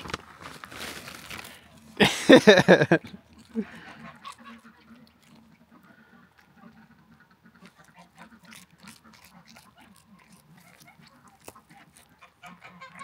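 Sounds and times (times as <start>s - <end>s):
cat chewing crunchy food: 2.6s - 13.0s.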